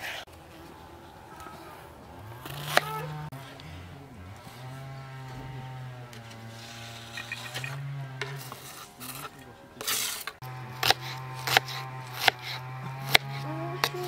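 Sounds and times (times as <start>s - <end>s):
utensil scraping in a pan: 6.1s - 14.0s.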